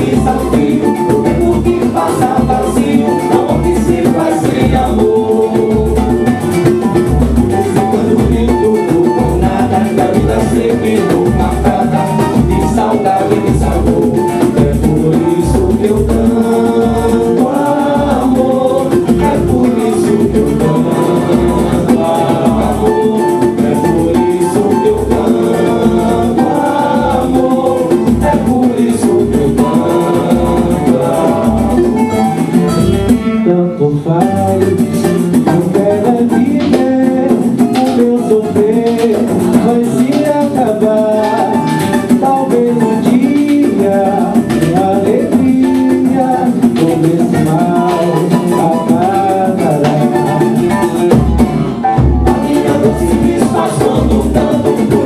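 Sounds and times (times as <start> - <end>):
deep drum beating: 0.0 - 33.2, 49.5 - 55.0
acoustic guitars: 0.0 - 55.0
hand drums and shakers: 0.0 - 55.0
people singing: 0.0 - 55.0.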